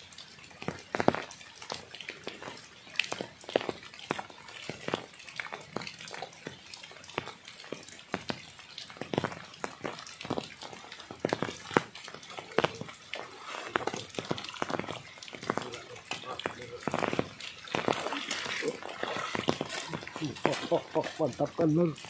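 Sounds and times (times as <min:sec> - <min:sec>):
rain falling: 0:00.0 - 0:22.0
raindrops tapping close: 0:00.0 - 0:22.0.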